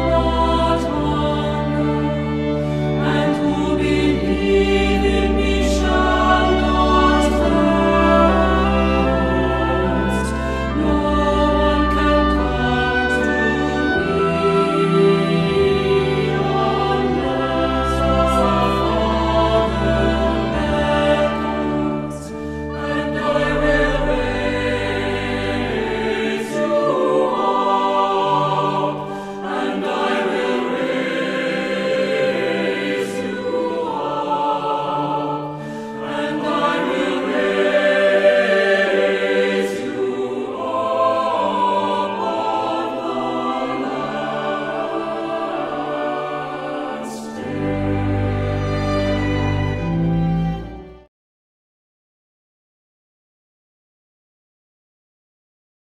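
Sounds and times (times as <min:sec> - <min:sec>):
choir singing a slow hymn: 0:00.0 - 0:50.9
deep low accompaniment: 0:03.4 - 0:26.7.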